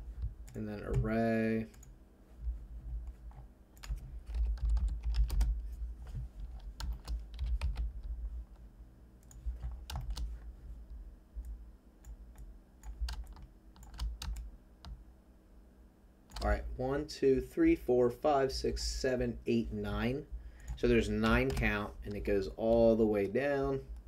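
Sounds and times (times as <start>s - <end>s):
keyboard keys clicking: 3.1s - 5.5s, 6.5s - 8.0s, 9.2s - 10.3s, 12.0s - 15.0s.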